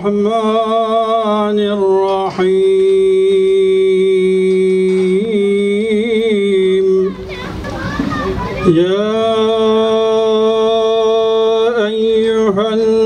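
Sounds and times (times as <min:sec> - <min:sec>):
man chanting a recitation: 0:00.0 - 0:07.3, 0:08.6 - 0:13.0.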